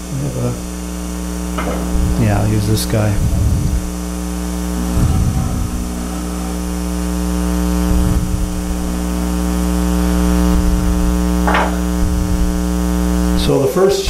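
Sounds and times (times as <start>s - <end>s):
electrical hum: 0.0s - 14.0s
short scraping noise: 4.8s - 8.6s.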